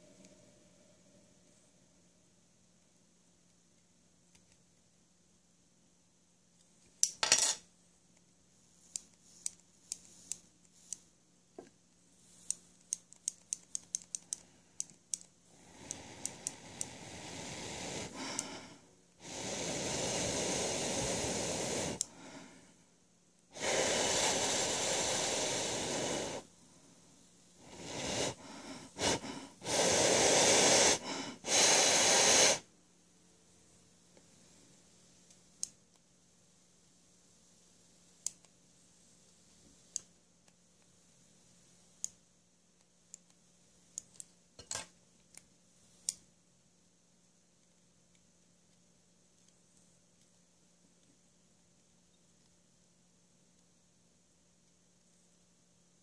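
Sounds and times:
coil hissing: 11.6s - 32.7s.

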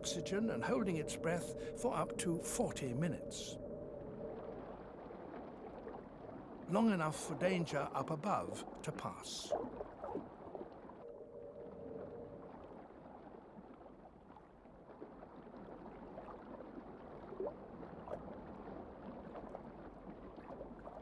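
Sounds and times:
soft blips: 0.0s - 6.0s, 11.0s - 12.7s
low hum: 0.0s - 8.8s, 9.5s - 13.5s
low watery hiss: 0.0s - 9.6s.

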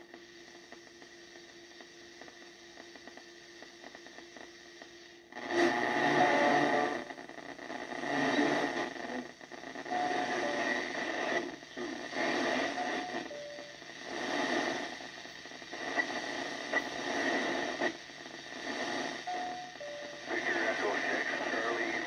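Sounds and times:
radio static hiss: 0.0s - 22.0s
two-note radio beeps: 9.9s - 11.0s, 12.6s - 13.8s, 19.3s - 22.0s.

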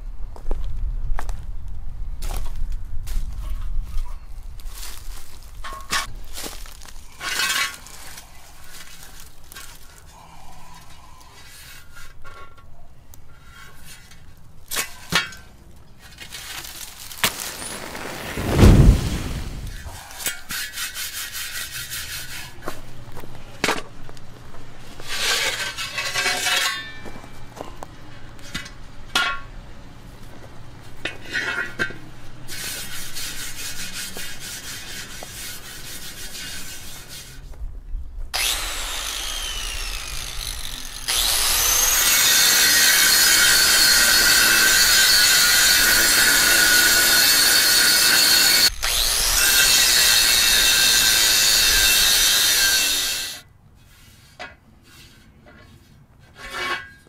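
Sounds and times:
rasping scraping on metal: 19.9s - 22.8s
power tool grinding steel: 38.4s - 53.4s.

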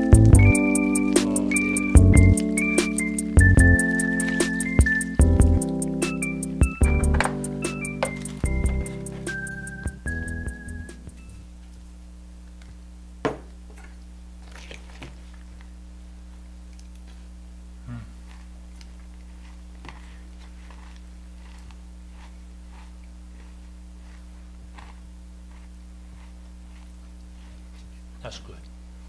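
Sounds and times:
steady low hum: 0.0s - 29.0s
faint crunching: 17.9s - 28.7s.

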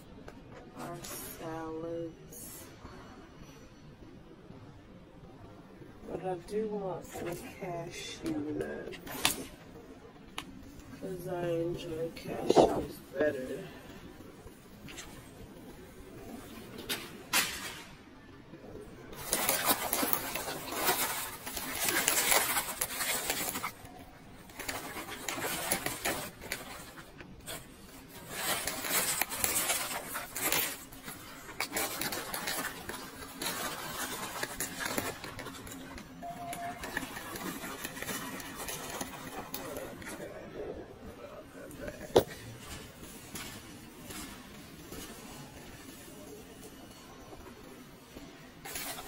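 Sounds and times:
shopping cart rattling on tiles: 19.1s - 40.4s, 42.2s - 49.0s.

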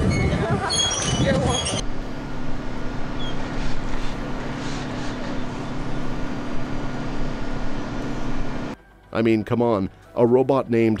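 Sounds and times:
low mechanical hum: 0.0s - 8.8s
outdoor noise: 0.0s - 9.2s.

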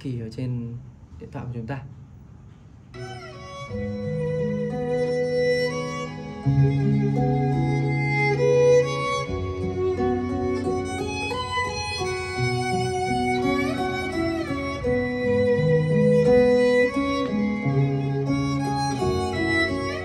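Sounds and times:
recorded music on hi-fi: 3.0s - 20.0s.

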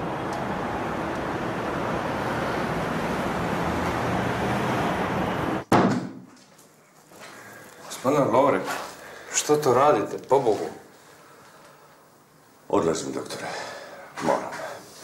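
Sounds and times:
cars passing: 0.0s - 5.6s.

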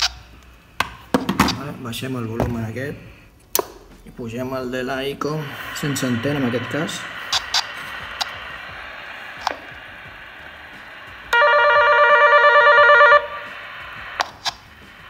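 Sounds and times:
radio receiver hiss: 4.0s - 15.0s
buzzing warbling call tone: 11.3s - 14.0s
sharp clicks: 14.2s - 15.0s.

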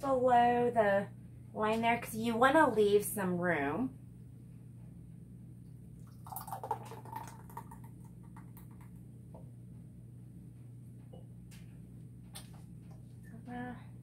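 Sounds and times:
steady low hum: 0.0s - 14.0s
thick sauce pouring into jar: 6.2s - 7.8s.

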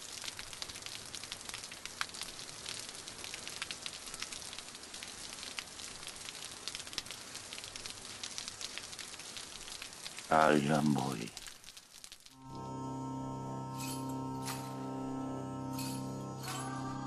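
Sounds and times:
rain pattering: 0.0s - 12.6s
drips and ticks: 0.0s - 12.7s.

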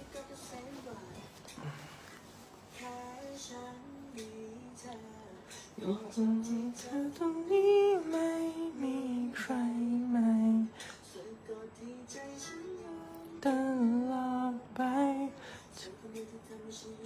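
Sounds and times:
person humming and singing: 2.7s - 11.4s.

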